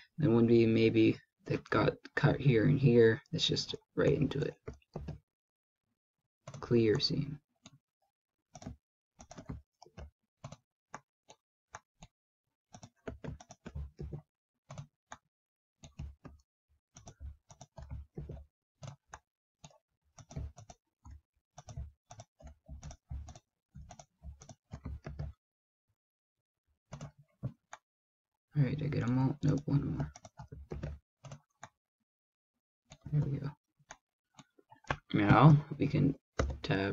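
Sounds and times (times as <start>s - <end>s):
computer mouse clicks: 6.5s - 7.8s, 8.5s - 11.0s, 12.7s - 15.2s, 15.8s - 16.4s, 17.0s - 25.4s
keyboard key presses: 8.6s - 11.0s, 17.0s - 20.8s, 29.0s - 31.7s, 36.4s - 36.8s.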